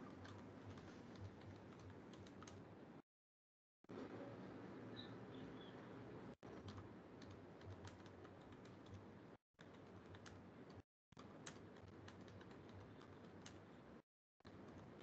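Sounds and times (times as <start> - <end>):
keyboard typing: 0.0 - 2.6, 6.5 - 13.8.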